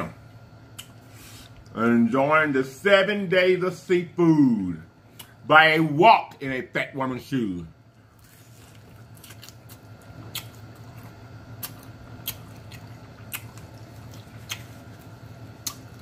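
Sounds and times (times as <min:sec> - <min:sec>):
person chewing crunchy food: 0:08.0 - 0:16.0
mouth smacks and crunches: 0:08.2 - 0:16.0.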